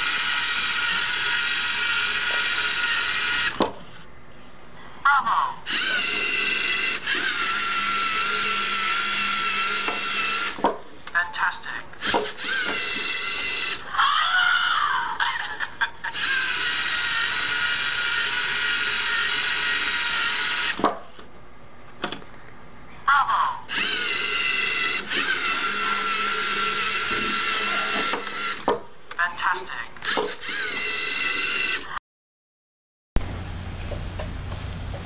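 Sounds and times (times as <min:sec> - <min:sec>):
electric motors whining: 0:00.0 - 0:04.0, 0:05.6 - 0:11.2, 0:12.0 - 0:21.3, 0:23.7 - 0:32.0.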